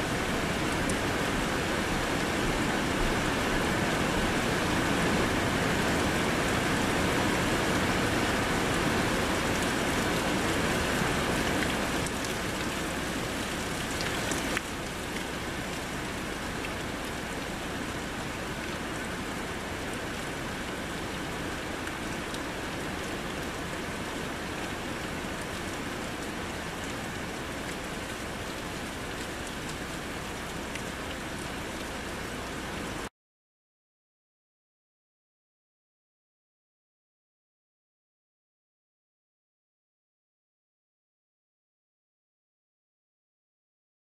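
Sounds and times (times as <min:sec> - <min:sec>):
heavy rain hissing: 0:00.0 - 0:33.1.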